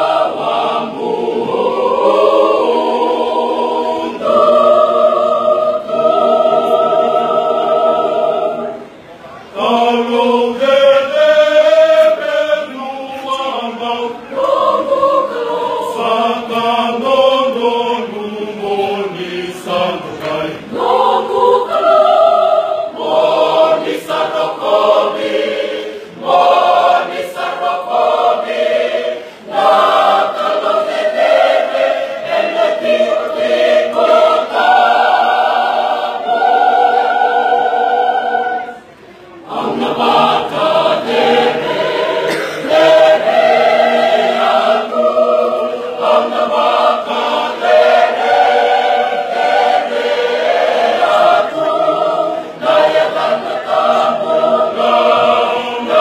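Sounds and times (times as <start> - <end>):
choir singing: 0.0 - 56.0.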